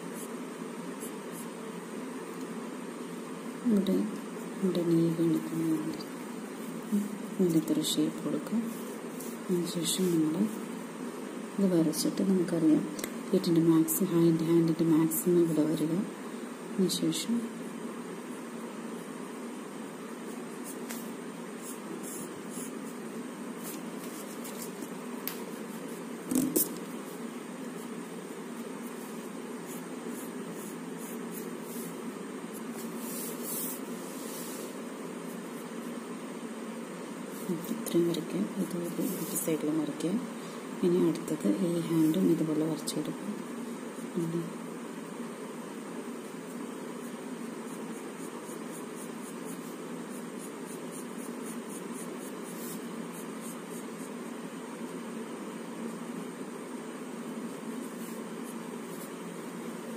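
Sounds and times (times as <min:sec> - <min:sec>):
steady background hum: 0:00.0 - 0:59.9
pencil scratching on paper: 0:20.2 - 0:24.9, 0:28.6 - 0:36.0, 0:46.2 - 0:54.3.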